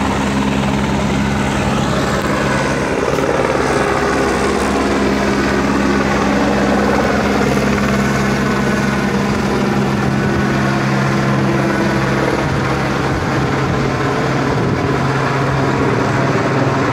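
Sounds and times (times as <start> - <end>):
helicopter rotor and engine: 0.0 - 16.9.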